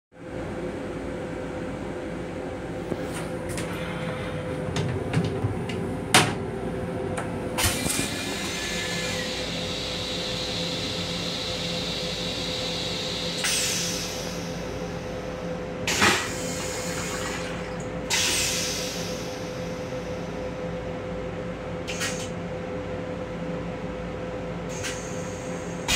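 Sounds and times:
railcar hum: 0.1 - 25.9
toilet flush hiss: 7.6 - 15.2, 15.9 - 20.3, 24.7 - 25.9.

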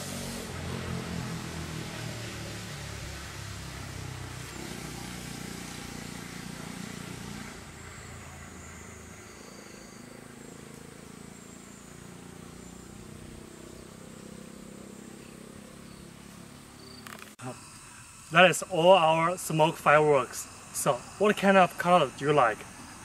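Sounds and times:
smoke firework hissing: 0.0 - 10.0, 17.3 - 23.0
insects chirping: 2.5 - 23.0.

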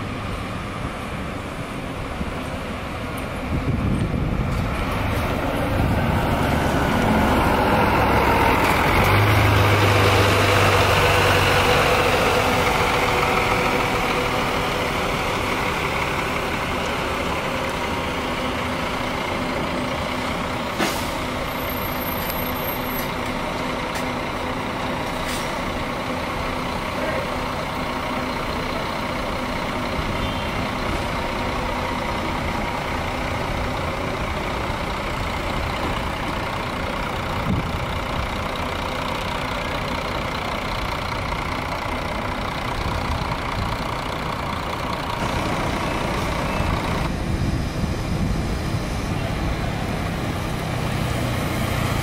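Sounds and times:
diesel bus engine running: 0.0 - 52.0
air brake hisses: 20.8 - 21.3, 25.1 - 25.6.

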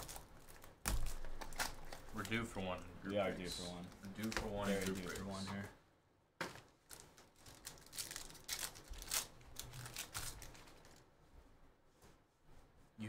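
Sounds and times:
card pack wrapper crinkling: 0.0 - 5.5, 6.4 - 11.0.

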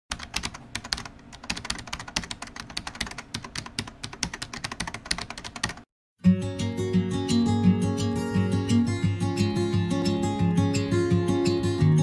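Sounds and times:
fast keyboard typing: 0.1 - 5.9.

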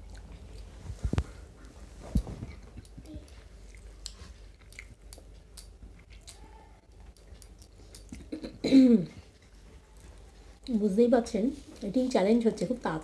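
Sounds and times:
chewing and mouth clicks: 0.0 - 8.4.

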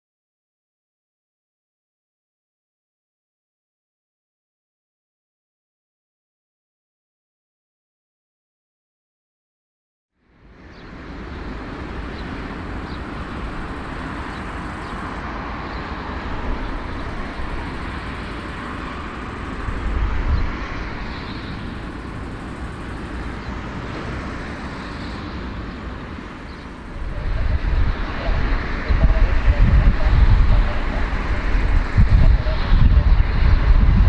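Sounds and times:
jet engines rumbling and hissing: 10.2 - 34.0.

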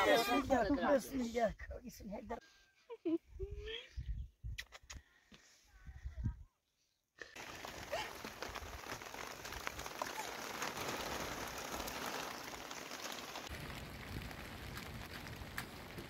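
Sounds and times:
steady rain falling: 7.4 - 16.0.

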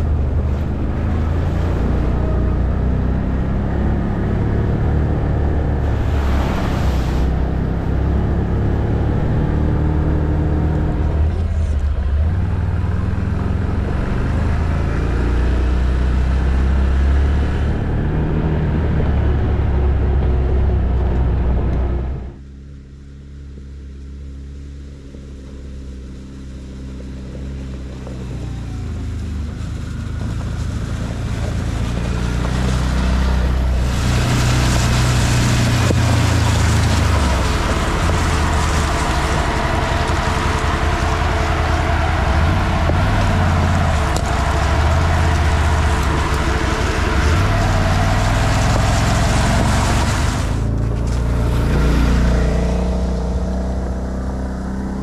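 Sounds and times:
quad bike engine revving: 28.0 - 55.0.

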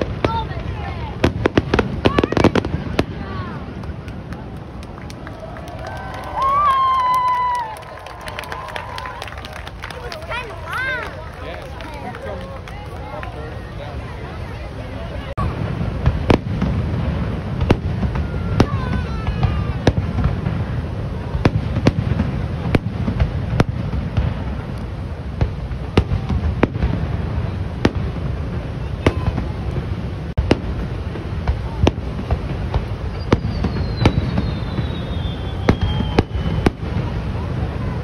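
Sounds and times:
falling firework whistle: 5.6 - 9.4, 17.6 - 20.8, 33.0 - 38.0.

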